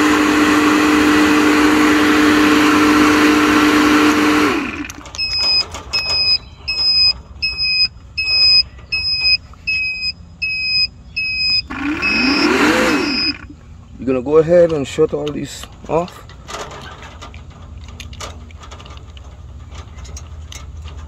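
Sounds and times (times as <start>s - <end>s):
compressor motor humming: 0.0s - 13.8s
electronic beeping: 5.2s - 13.5s.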